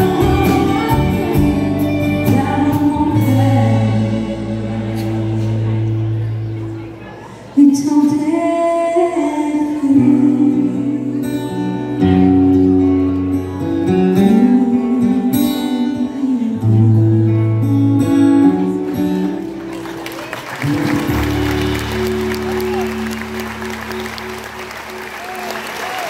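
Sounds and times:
woman singing into a microphone: 0.0s - 5.8s, 7.6s - 12.4s, 14.1s - 17.7s
guitar accompaniment: 0.0s - 26.0s.

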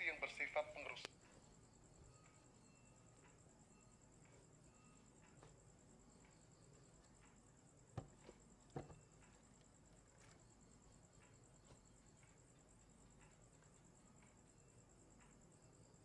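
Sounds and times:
faint high-pitched trill: 0.0s - 7.7s
light knocks: 7.9s - 9.1s.

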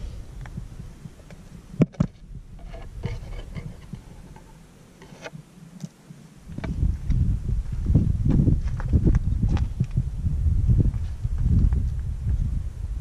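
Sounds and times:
twig scratching plastic: 2.6s - 5.4s.

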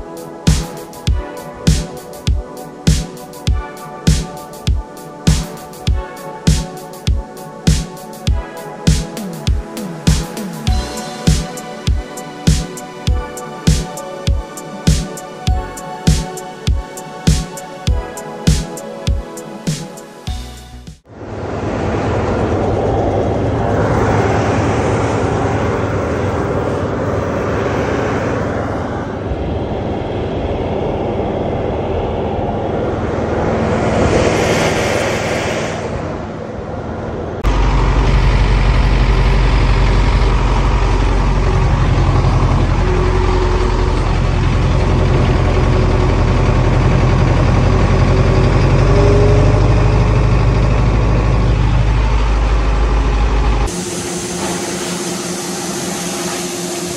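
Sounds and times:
tractor engine drone: 21.0s - 56.9s
combine harvester running: 37.5s - 56.9s.

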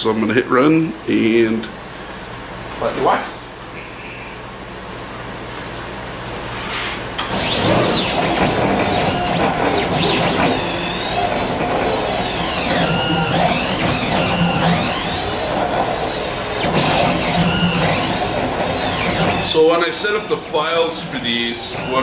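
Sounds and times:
laser cutter motors whining: 7.2s - 22.0s.

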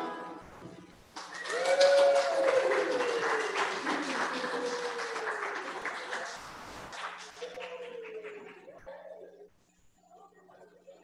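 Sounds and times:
clapping: 1.2s - 8.9s.

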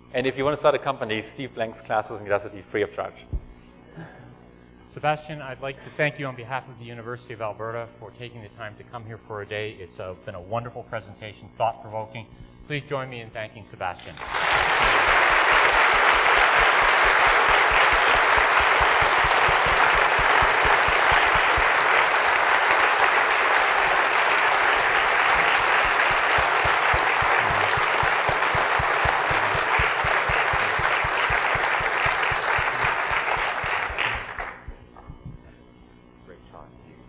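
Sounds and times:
large audience applauding: 14.2s - 34.7s.

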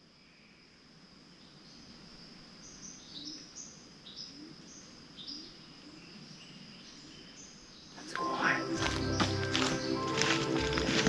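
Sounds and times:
high insect drone: 0.0s - 11.0s
bird chirps: 2.6s - 11.0s.

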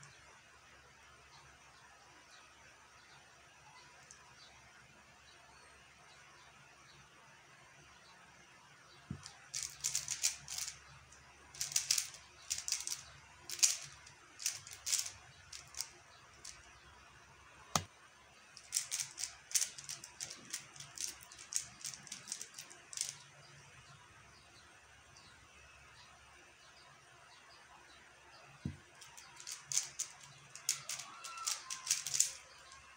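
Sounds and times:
puzzle cube plastic clicking: 9.1s - 10.8s, 11.6s - 16.7s, 18.6s - 23.3s, 28.7s - 32.8s.

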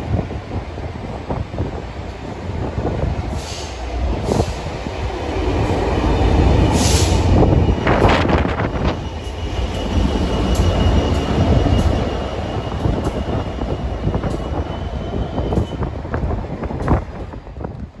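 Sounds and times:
diesel locomotive passing: 0.0s - 18.0s
train wheels rumbling on rail: 0.0s - 18.0s.

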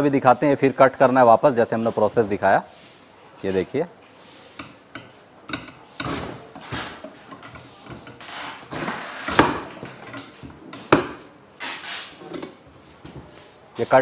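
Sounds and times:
coconut cutter cutting strokes: 4.3s - 12.6s.

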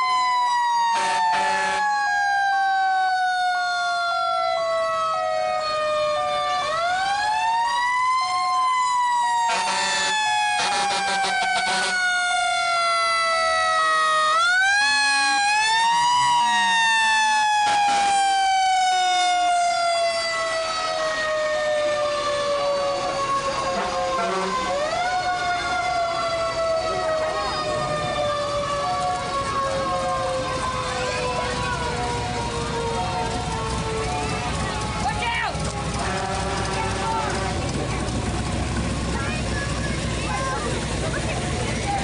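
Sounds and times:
mechanical siren wailing: 0.0s - 39.0s
horn blasts: 0.9s - 1.9s, 9.4s - 12.1s, 17.6s - 18.3s, 23.7s - 24.8s, 34.5s - 38.1s.

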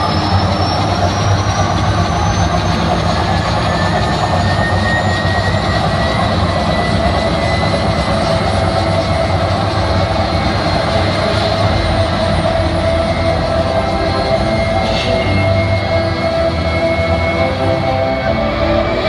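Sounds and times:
crowd noise: 0.0s - 19.0s
rising build-up sweep tones: 7.6s - 19.0s.

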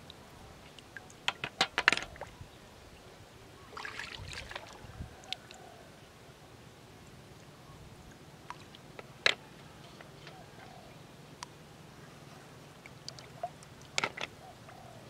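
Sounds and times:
water splashing: 3.6s - 4.9s.

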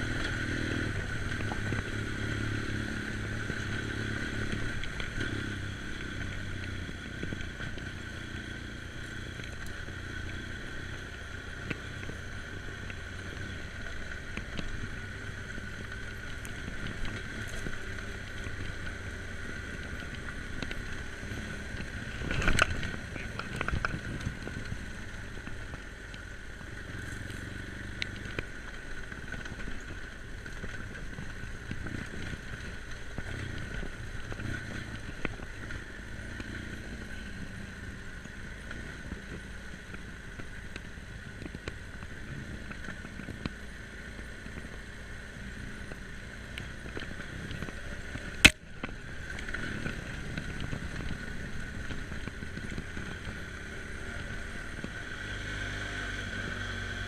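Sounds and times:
motorcycle engine running: 0.0s - 57.0s
road and wind noise: 0.0s - 57.0s.

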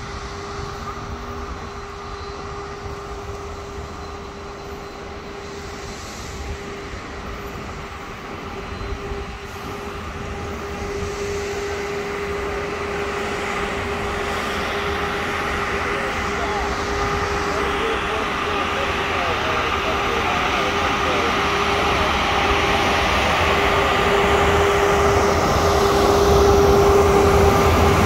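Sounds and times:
rail machine engine drone: 0.0s - 28.0s.

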